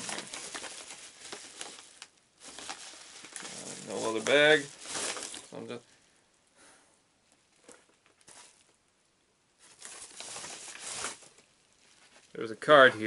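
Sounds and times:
paper packaging crinkling: 0.0 - 5.8, 7.5 - 8.8, 9.6 - 12.8.

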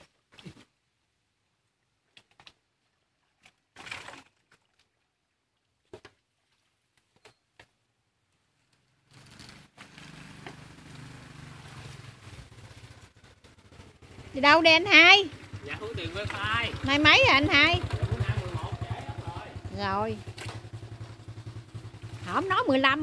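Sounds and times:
knocks and scrapes of shovelling muck: 2.0 - 7.6, 8.5 - 14.0.

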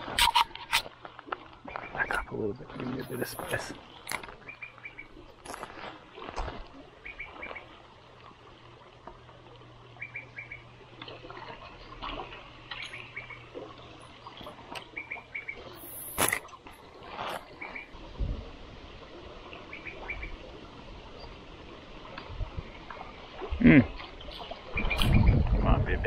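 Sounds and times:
bird calling: 4.3 - 5.2, 7.0 - 7.8, 10.0 - 10.8, 12.7 - 16.3, 19.6 - 20.4.

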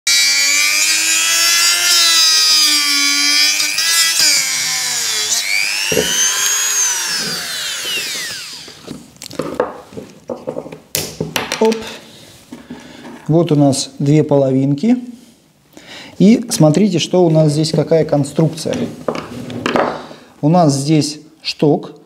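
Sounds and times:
power tool motor whining: 0.1 - 8.9.

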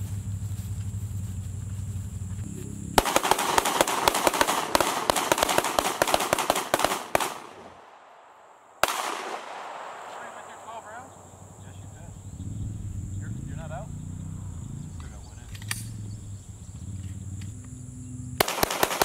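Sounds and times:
low engine rumble: 0.0 - 5.2, 9.5 - 18.5
rifle shots: 3.0 - 11.0, 18.4 - 19.0.

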